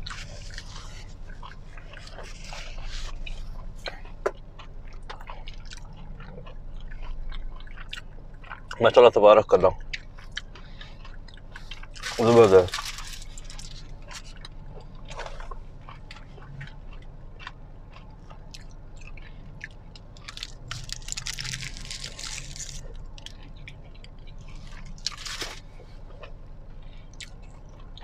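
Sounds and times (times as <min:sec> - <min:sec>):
wet mouth sounds: 0:00.0 - 0:08.8
low hum: 0:00.0 - 0:28.0
person chewing and crunching: 0:00.0 - 0:28.0.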